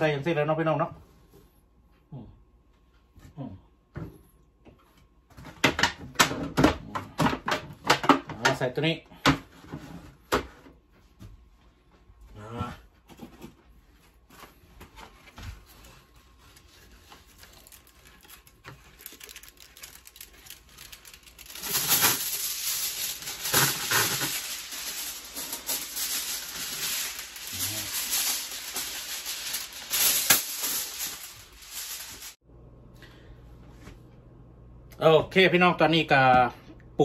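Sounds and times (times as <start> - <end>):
aluminium foil crinkling: 15.0 - 32.4.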